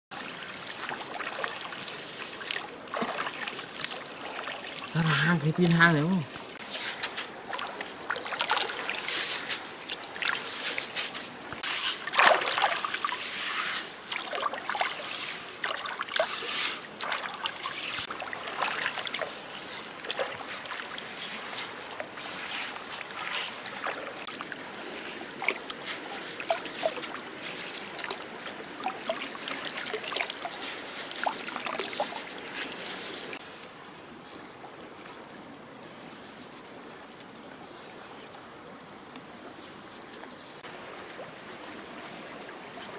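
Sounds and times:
water trickling: 0:00.1 - 0:33.4
hands splashing in stream water: 0:00.2 - 0:33.4.

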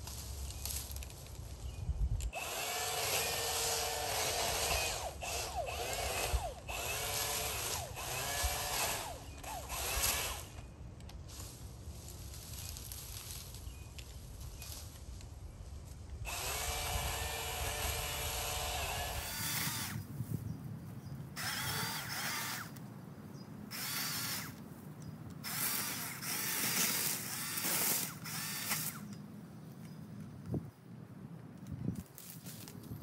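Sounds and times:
electric pole saw whining: 0:02.2 - 0:10.8, 0:16.2 - 0:20.0, 0:21.4 - 0:22.8, 0:23.7 - 0:24.6, 0:25.4 - 0:29.2.

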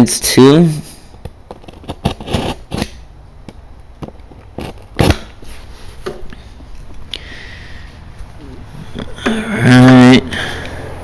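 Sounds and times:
box cutter slicing cardboard: 0:01.7 - 0:03.0, 0:04.6 - 0:05.3.

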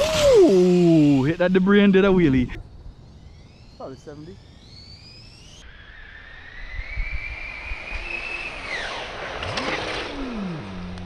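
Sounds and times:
rc car electric motor whine: 0:04.4 - 0:11.0
rush of noise as car passes: 0:04.7 - 0:11.0.

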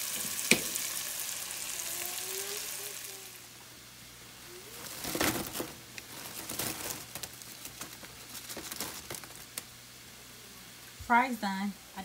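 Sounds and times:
fries crackling: 0:00.0 - 0:12.0
paper towel crinkling: 0:04.6 - 0:09.7.

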